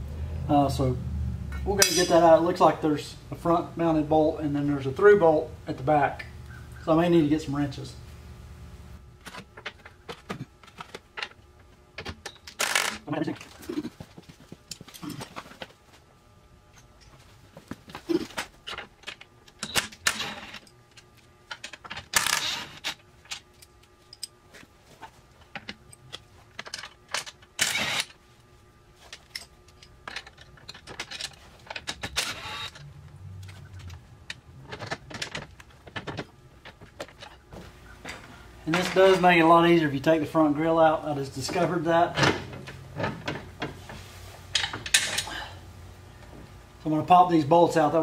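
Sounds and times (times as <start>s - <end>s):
harsh tool bursts: 12.6s - 13.0s, 22.2s - 22.9s, 27.6s - 28.2s, 32.2s - 32.8s.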